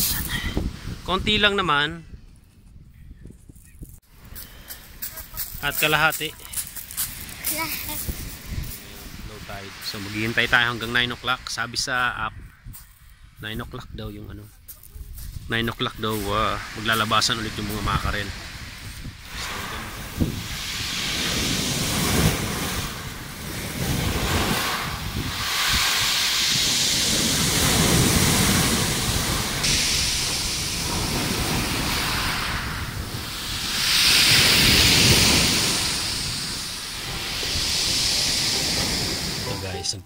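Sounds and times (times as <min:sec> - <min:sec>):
wind buffeting microphone: 0:00.0 - 0:11.6, 0:12.2 - 0:39.5
surf breaking on pebble beach: 0:16.0 - 0:39.8.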